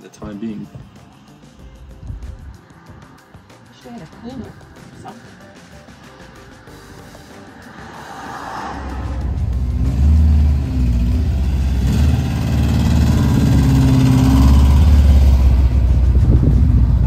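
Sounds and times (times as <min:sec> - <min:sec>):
engine revving: 0:05.7 - 0:17.0.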